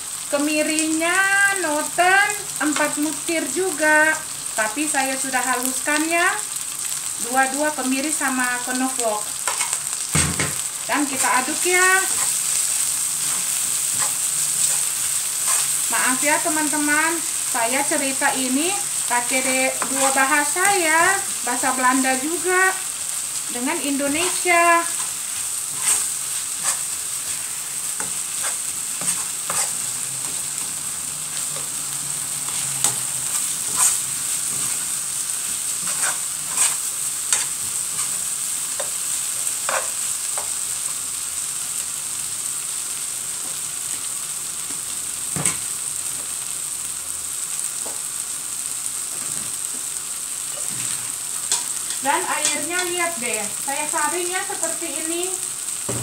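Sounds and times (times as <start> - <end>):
onion and paste sizzling in pan: 0.0 - 56.0
spatula clicking and scraping pan: 9.4 - 10.0, 11.2 - 15.9, 19.7 - 20.3, 24.2 - 30.7, 32.4 - 41.0, 50.6 - 52.9.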